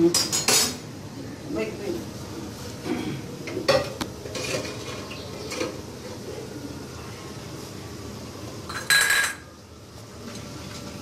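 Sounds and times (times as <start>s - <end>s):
metal kitchenware clinking: 0.0s - 0.8s, 3.7s - 5.8s, 8.7s - 9.5s.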